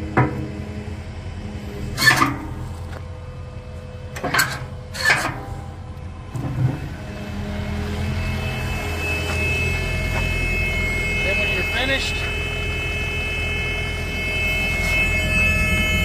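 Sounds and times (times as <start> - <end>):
diesel engine running: 0.0 - 16.0
steady high tone: 7.0 - 16.0.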